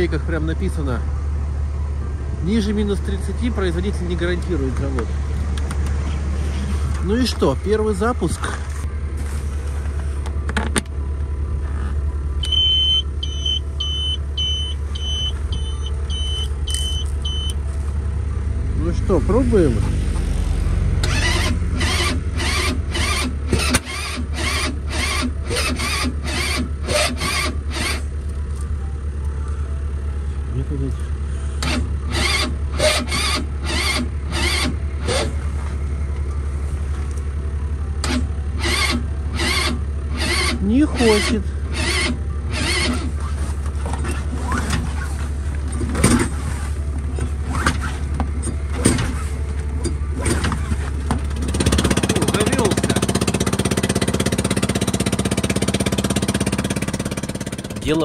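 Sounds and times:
engine cranking by starter: 18.7s - 28.8s, 31.0s - 58.0s.

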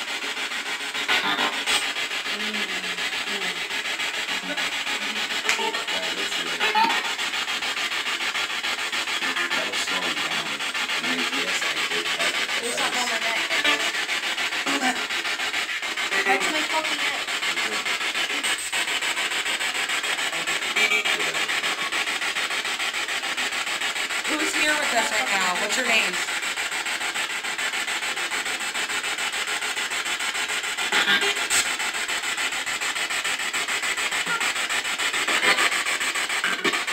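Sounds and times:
radio static hiss: 0.0s - 36.9s
broken snatches of radio sound: 0.9s - 2.0s, 3.1s - 8.0s, 8.6s - 22.3s.

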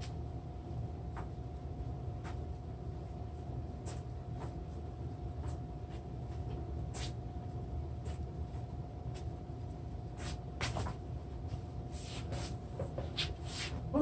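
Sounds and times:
faint steady whine: 0.0s - 14.0s
steady low hum: 0.0s - 14.0s.

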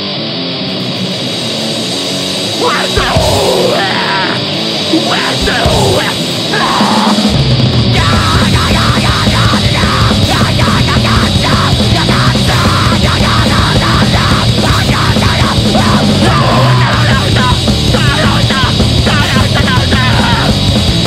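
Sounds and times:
distorted guitars: 0.0s - 21.0s
fast heavy drums: 0.0s - 21.0s.

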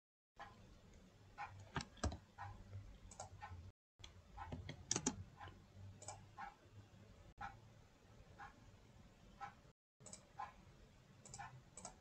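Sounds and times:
computer mouse clicking: 1.4s - 6.5s, 9.4s - 10.6s, 11.2s - 12.0s.

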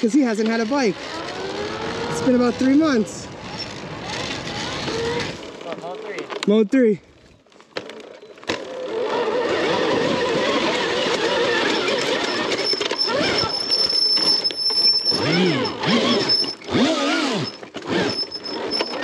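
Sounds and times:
tyre and trail noise: 0.0s - 19.0s
electric motorcycle motor whine: 0.6s - 5.6s, 8.2s - 19.0s.

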